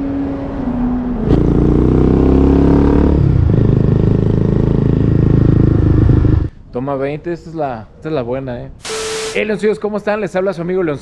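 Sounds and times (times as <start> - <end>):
motorcycle engine accelerating: 0.8 - 6.5.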